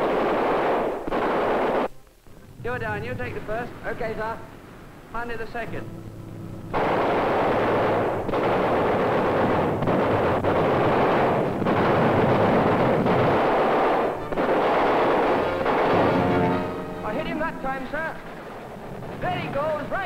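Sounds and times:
machine guns firing in bursts: 0.0 - 1.9, 6.7 - 20.0.

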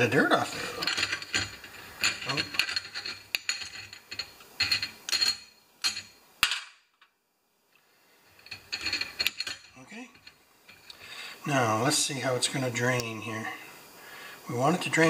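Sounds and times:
metal parts clinking in wire basket: 0.4 - 6.1, 8.4 - 10.4.

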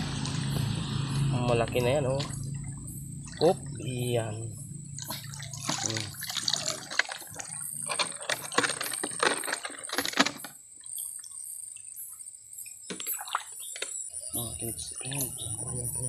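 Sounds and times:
water splashing and dripping: 0.0 - 12.0, 12.6 - 15.8
plastic bottle clicks and rattles: 7.8 - 10.6, 12.9 - 14.0.

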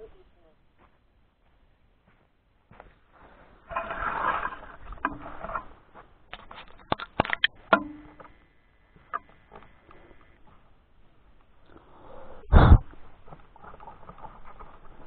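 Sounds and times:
rustling scrape of handling: 3.3 - 5.8
sharp clicks and knocks: 6.3 - 8.4.

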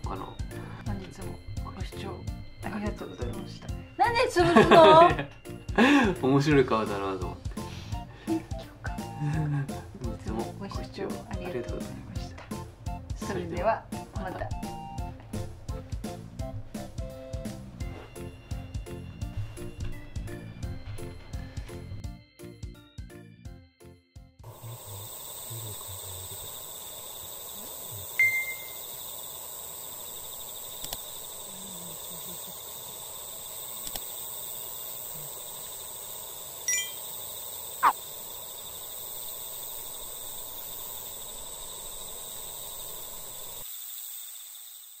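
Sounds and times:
insect chorus: 0.0 - 12.0, 24.4 - 45.0
falling whistle: 27.1 - 29.2
chime-like ringing tones: 28.2 - 28.8, 36.7 - 37.0.

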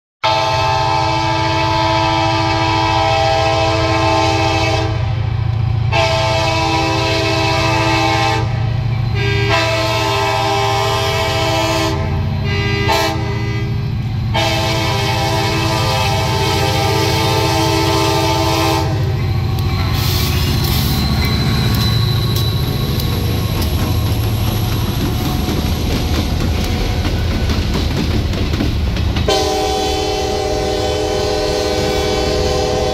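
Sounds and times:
locomotive air horn blasts: 0.2 - 5.2, 5.9 - 19.2, 29.3 - 32.9
diesel locomotive rumble: 0.2 - 32.9
train wheels clicking over rail joints: 18.9 - 30.4.

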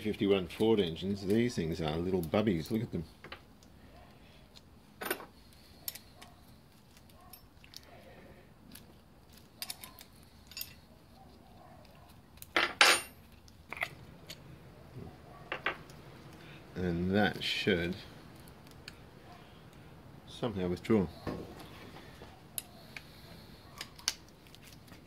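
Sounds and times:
metal tools clicking and clinking: 5.0 - 7.8, 8.7 - 10.9, 12.3 - 14.4.

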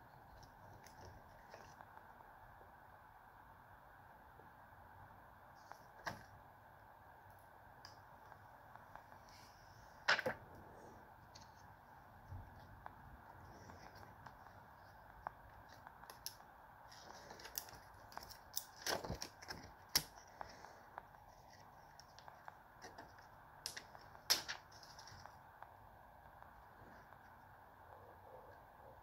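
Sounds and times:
plastic film crinkling: 13.6 - 25.4.

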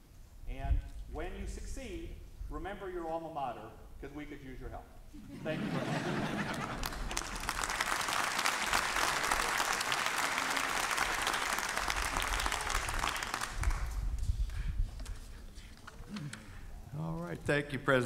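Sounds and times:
audience applauding: 5.9 - 14.0.

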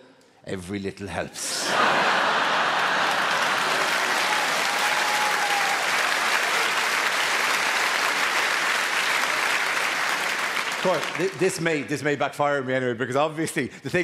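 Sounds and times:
audience applauding: 1.6 - 11.7.

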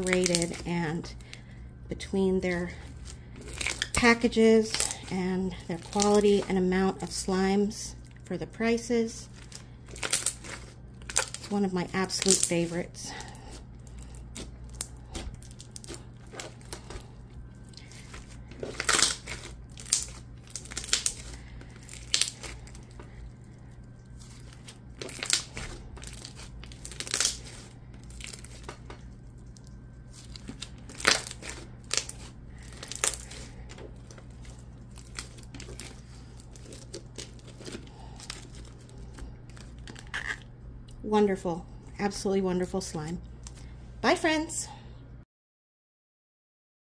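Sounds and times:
slime squished by hand: 17.6 - 40.4.

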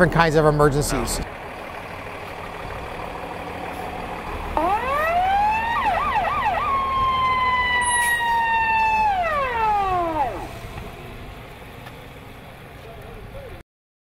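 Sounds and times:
fire engine rumble: 0.0 - 13.6
siren wailing: 4.6 - 10.9.

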